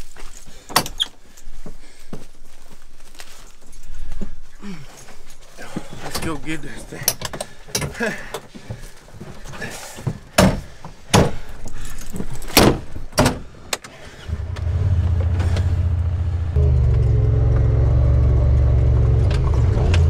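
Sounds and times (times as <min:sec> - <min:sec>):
utility vehicle engine running: 0:14.1 - 0:20.0.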